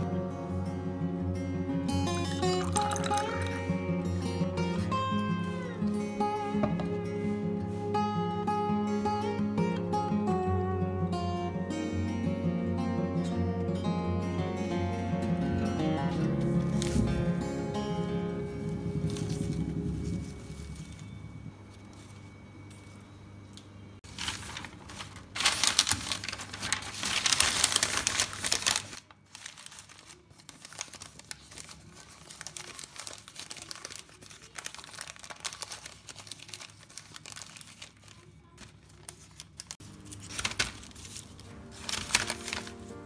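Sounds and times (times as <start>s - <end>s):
newspaper crinkling and rustling: 2.1s - 7.9s, 16.2s - 23.0s, 24.0s - 43.0s.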